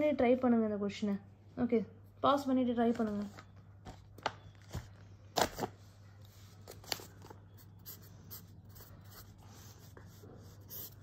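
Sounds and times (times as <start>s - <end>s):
pen scratching on paper: 7.8s - 11.0s.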